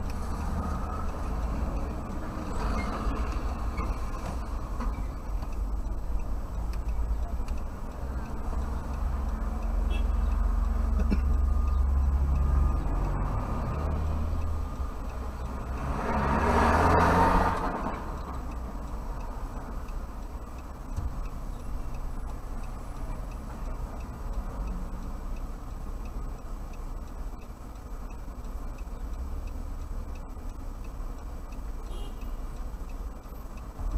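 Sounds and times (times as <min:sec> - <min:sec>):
low engine rumble: 0:00.0 - 0:16.6
vehicle passing close: 0:10.4 - 0:18.6.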